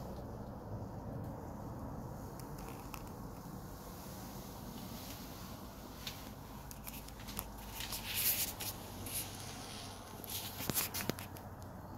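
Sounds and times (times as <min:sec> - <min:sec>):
rustling: 0:01.4 - 0:11.6
light shuffling footsteps: 0:03.4 - 0:11.6.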